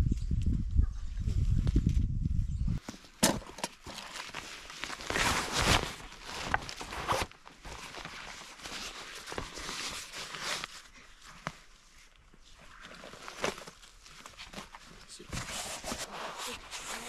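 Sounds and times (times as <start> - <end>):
backpack fabric rustling: 3.8 - 12.0, 12.6 - 17.0.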